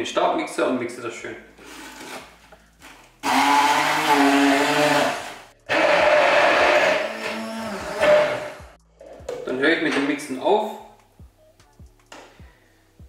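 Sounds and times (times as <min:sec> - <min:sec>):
electric stick blender running: 0:03.2 - 0:08.8.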